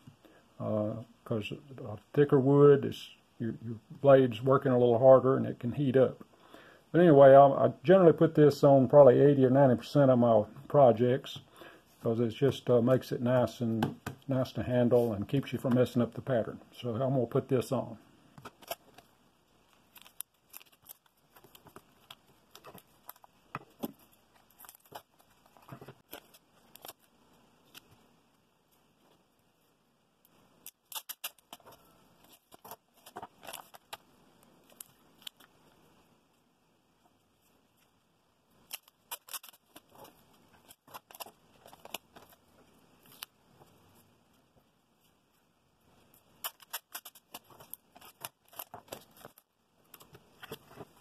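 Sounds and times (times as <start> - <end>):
packing tape crinkling: 19.7 - 28.0, 30.6 - 34.0, 38.6 - 43.3, 46.4 - 50.7.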